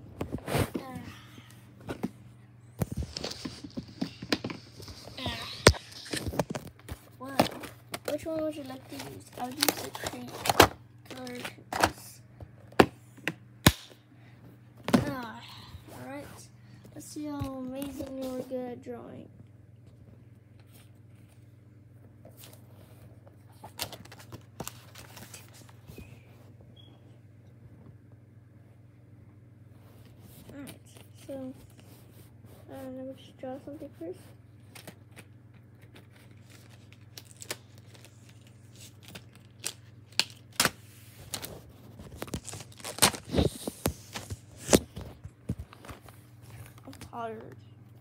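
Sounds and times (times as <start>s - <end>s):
low steady hum: 0.0s - 48.0s
paper rustling: 2.8s - 11.6s, 40.8s - 47.4s.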